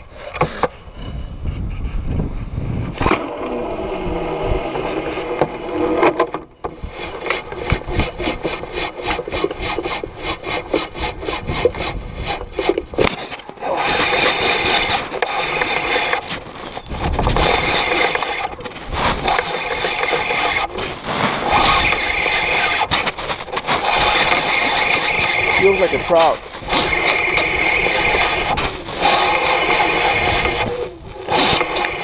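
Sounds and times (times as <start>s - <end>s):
fishing reel grinding and ticking: 7.0s - 32.0s.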